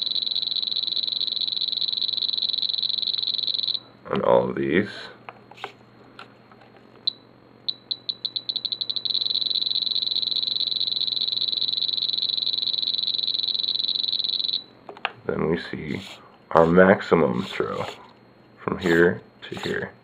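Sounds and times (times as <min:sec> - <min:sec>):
transmitter beeps: 0:07.1 - 0:14.6.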